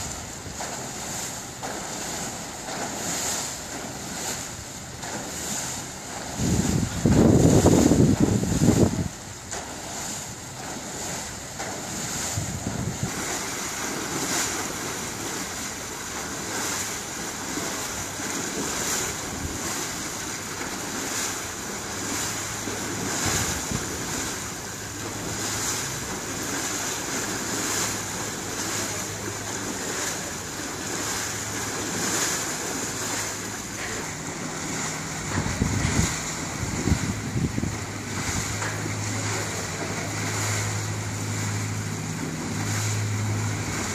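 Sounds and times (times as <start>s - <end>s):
ship propeller churning water: 0.0s - 43.9s
wind buffeting microphone: 6.2s - 10.6s, 11.8s - 14.9s, 22.9s - 26.6s, 34.4s - 39.3s.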